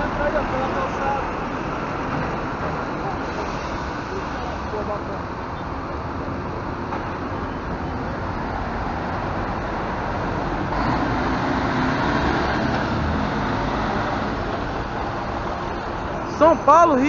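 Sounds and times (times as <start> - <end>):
coach diesel engine driving past: 8.8 - 16.0.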